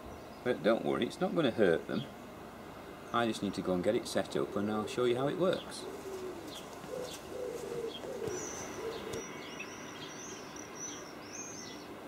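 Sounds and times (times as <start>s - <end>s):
songbird chirps and trills: 0.0s - 12.0s
pigeon cooing: 5.6s - 9.4s.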